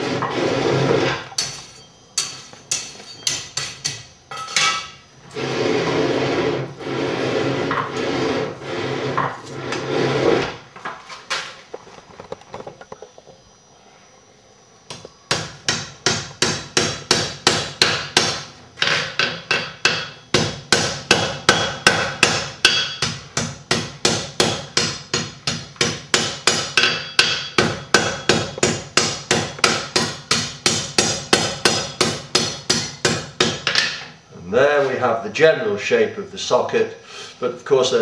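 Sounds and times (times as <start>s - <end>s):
hammer striking iron on anvil: 1.4s - 5.0s, 15.3s - 34.0s.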